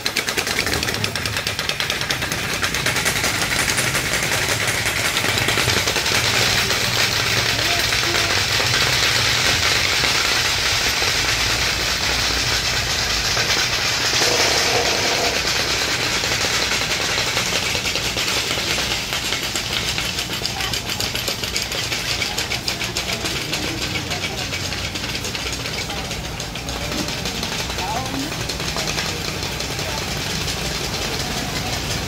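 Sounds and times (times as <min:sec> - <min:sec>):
small engine running: 0:00.0 - 0:32.0.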